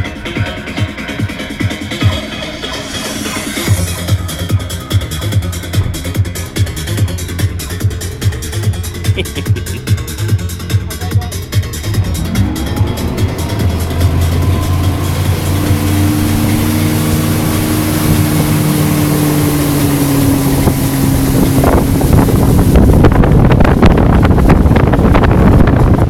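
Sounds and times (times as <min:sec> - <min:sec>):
motorboat engine running: 0:00.0 - 0:26.0
water rush from wake: 0:00.0 - 0:26.0
wind buffeting microphone: 0:03.7 - 0:09.0, 0:11.8 - 0:26.0.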